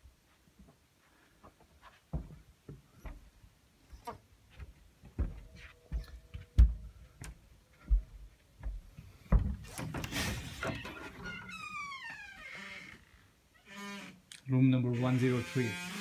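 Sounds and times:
footsteps on wooden floor: 0:00.6 - 0:10.8.

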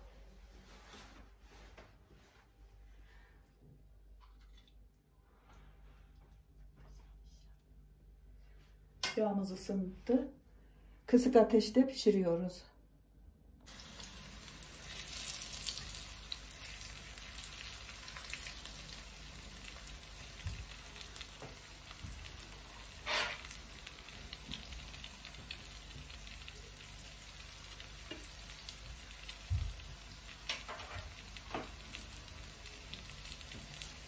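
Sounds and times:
fritters sizzling in hot oil: 0:13.7 - 0:34.0.

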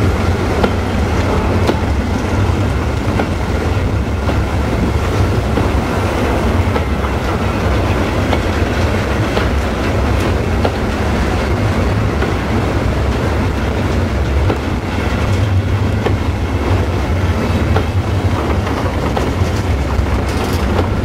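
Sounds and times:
train wheels rumbling on track: 0:00.0 - 0:21.0
wheels clicking on rail joints: 0:00.0 - 0:21.0.

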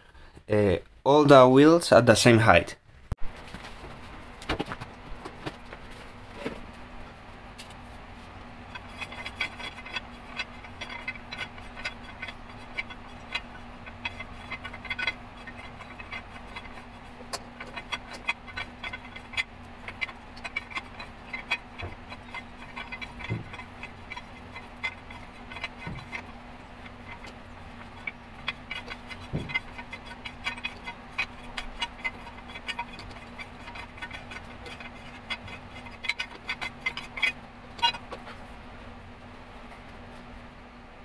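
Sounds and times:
faint steady hum: 0:00.0 - 0:41.0
metallic clicks and rattles: 0:08.7 - 0:38.4.

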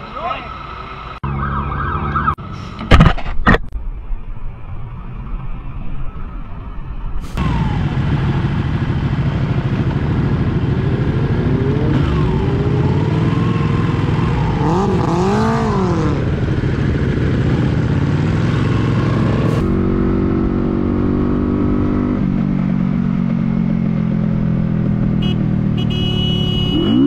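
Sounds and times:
motorcycle engines droning: 0:04.0 - 0:27.0
motorcycles revving: 0:07.4 - 0:27.0.

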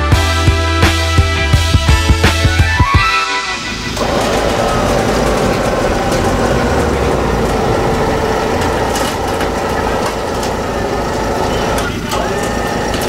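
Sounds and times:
truck engine running steadily: 0:00.0 - 0:13.0.

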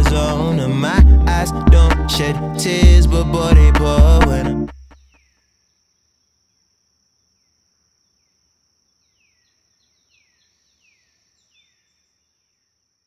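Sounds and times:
bird chirping: 0:04.8 - 0:06.6, 0:07.4 - 0:12.8.

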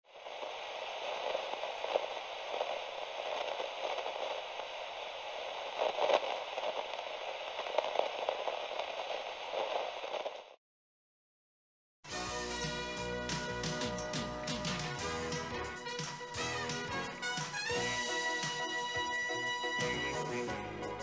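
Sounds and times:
television static hiss and crackle: 0:00.1 - 0:10.6.

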